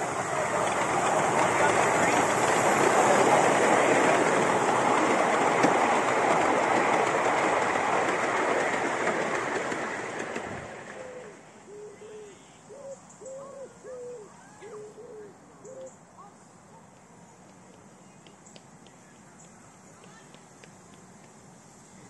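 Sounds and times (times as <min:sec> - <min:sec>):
train carriages rattling on track: 0:00.0 - 0:11.1
bird cooing: 0:11.0 - 0:15.9.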